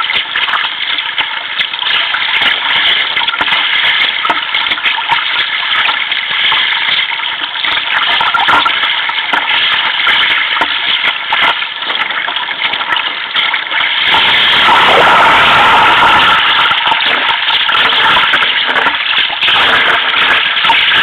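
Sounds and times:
wave breaking: 0:14.1 - 0:18.6.

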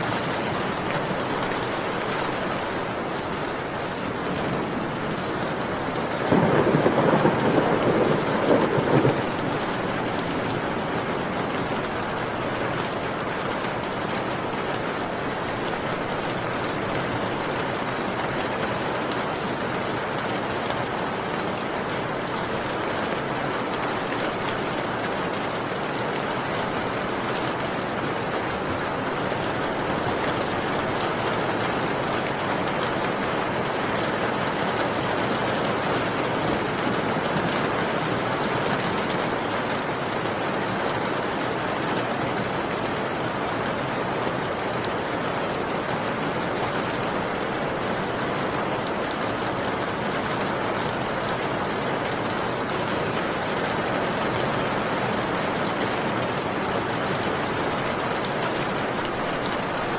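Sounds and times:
steady rain: 0:00.0 - 0:59.9
thunder rumbling: 0:03.7 - 0:11.2.

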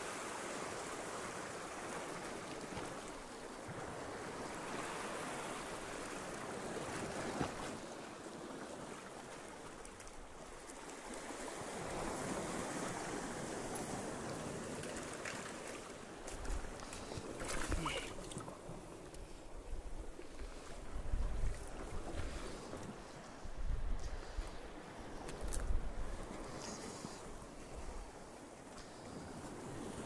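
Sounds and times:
waves breaking against rocks: 0:00.1 - 0:23.2.

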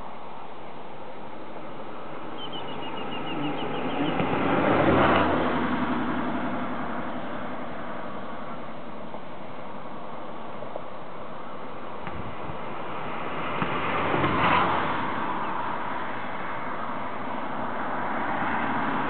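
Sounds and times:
vehicle passing: 0:01.8 - 0:09.0, 0:12.3 - 0:19.0.

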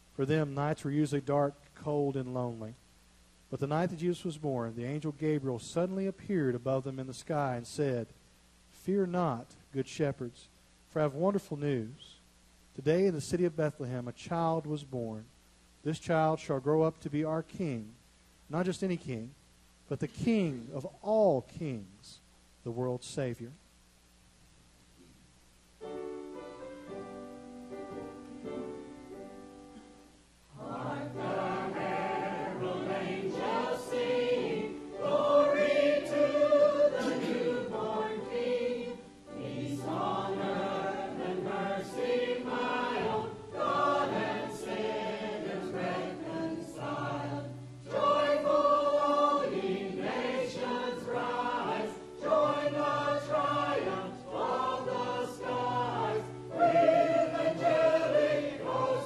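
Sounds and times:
choir singing: 0:30.5 - 0:59.0.

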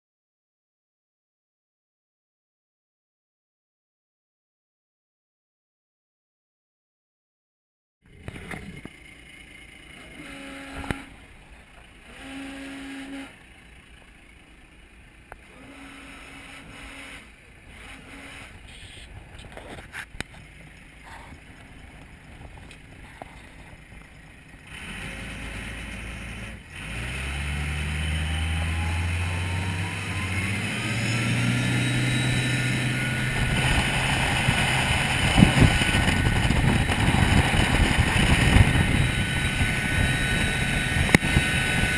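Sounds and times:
boat diesel engine whining: 0:08.1 - 0:41.9
wind noise: 0:29.4 - 0:41.9
short beeps: 0:31.4 - 0:33.3.

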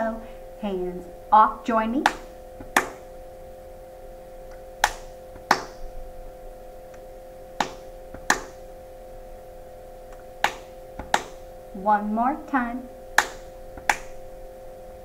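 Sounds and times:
sharp hand strikes: 0:02.0 - 0:03.1, 0:04.8 - 0:05.9, 0:07.6 - 0:08.6, 0:10.1 - 0:11.5, 0:13.2 - 0:14.2.

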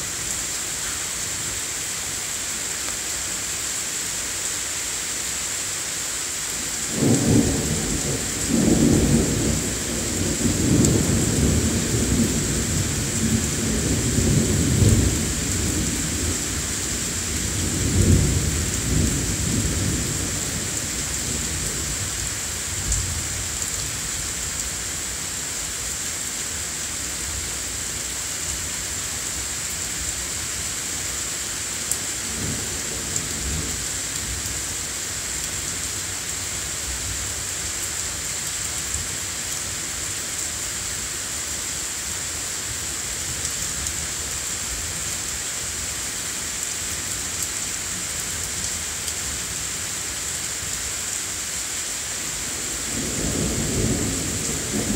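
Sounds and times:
steady rain: 0:00.0 - 0:54.9.

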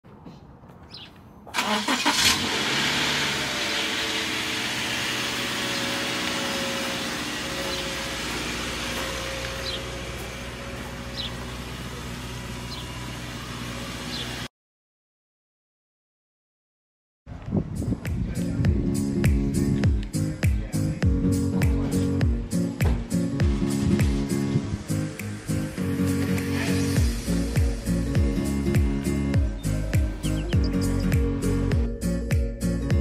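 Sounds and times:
car engine starting and idling: 0:01.5 - 0:14.5, 0:19.5 - 0:33.0.

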